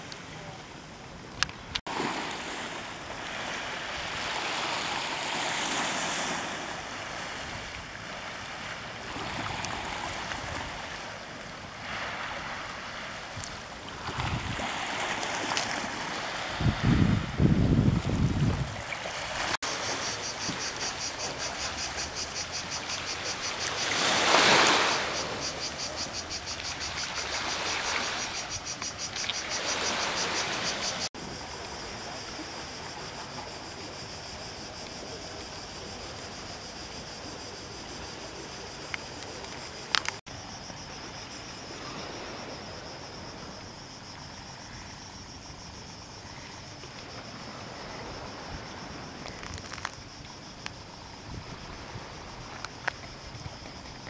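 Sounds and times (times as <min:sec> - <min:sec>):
cicadas chirring: 0:00.6 - 0:54.0
waves washing onto pebble beach: 0:01.9 - 0:17.4, 0:18.0 - 0:32.3.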